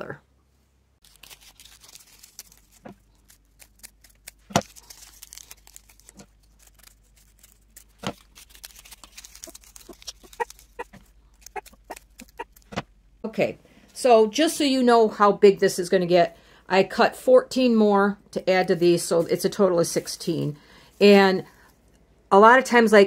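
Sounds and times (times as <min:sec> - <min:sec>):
paper liners crinkling and rustling: 0:01.0 - 0:12.8.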